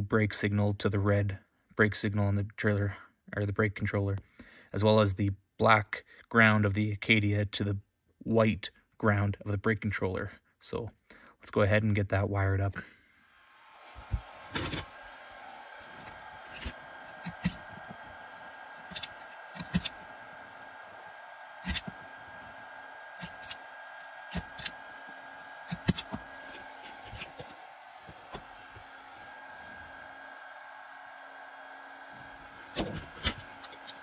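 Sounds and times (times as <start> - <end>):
steady hum: 13.0 - 34.0
wires being handled: 15.8 - 24.8, 25.6 - 28.8
wire stripper clicks and snaps: 25.7 - 26.2.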